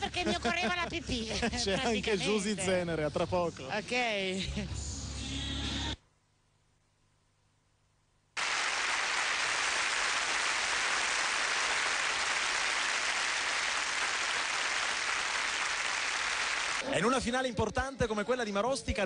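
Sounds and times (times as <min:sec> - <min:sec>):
audience applauding: 0:08.4 - 0:16.8.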